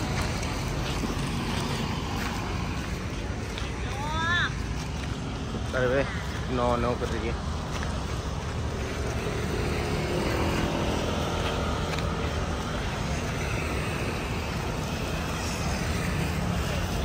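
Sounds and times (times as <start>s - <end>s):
road traffic: 0.0s - 17.0s.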